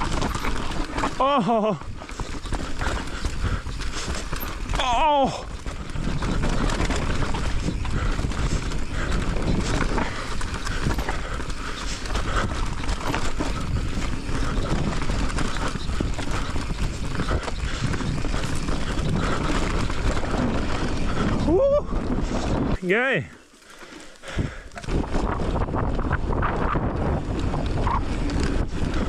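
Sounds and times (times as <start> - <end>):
tyre rumble: 0.0 - 22.8
bike rattling over rough trail: 0.0 - 29.0.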